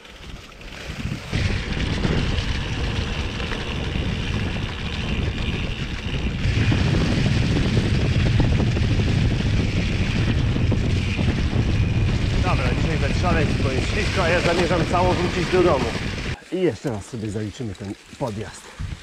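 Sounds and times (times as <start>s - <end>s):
bike tyres rumbling over trail: 0.0s - 16.4s
wind buffeting microphone: 0.0s - 17.0s, 18.4s - 19.0s.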